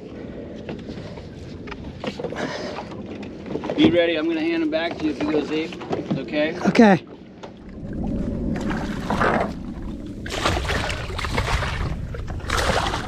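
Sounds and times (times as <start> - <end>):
steady low rumble: 7.6 - 13.0
shark thrashing and splashing water: 7.7 - 13.0.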